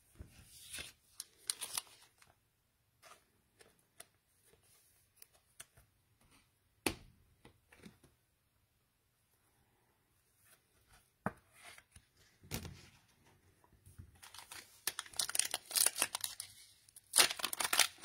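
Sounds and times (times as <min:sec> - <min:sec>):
cards rustling and clicking: 0:00.6 - 0:02.3, 0:14.2 - 0:18.0.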